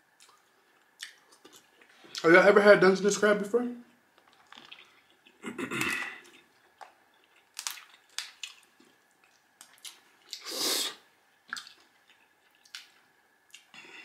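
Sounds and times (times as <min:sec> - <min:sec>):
mouth chewing clicks and smacks: 0:00.2 - 0:02.2, 0:04.2 - 0:05.4, 0:11.5 - 0:13.7
mouth sucking sound: 0:10.3 - 0:11.0.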